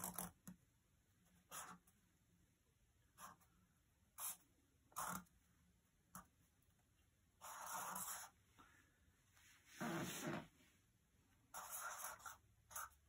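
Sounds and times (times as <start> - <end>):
marker pen scratching on paper: 0.0 - 0.6, 1.3 - 2.0, 3.1 - 3.5, 4.1 - 5.4, 7.4 - 8.4, 9.8 - 10.6, 11.4 - 13.0.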